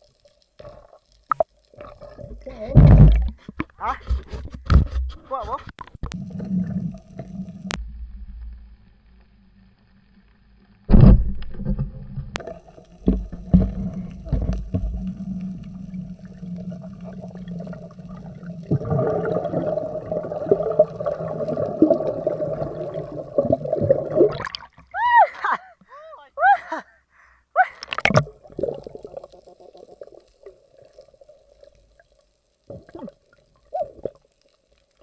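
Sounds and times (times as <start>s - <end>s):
water gurgling: 0.0s - 4.4s, 6.1s - 8.3s, 10.9s - 25.1s, 27.8s - 35.0s
underwater droning hum: 6.0s - 24.8s.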